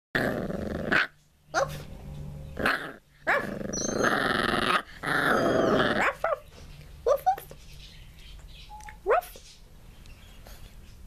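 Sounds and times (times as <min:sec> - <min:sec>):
puppy growling: 0:00.2 - 0:01.9, 0:02.5 - 0:06.4
puppy yipping: 0:03.3 - 0:04.2.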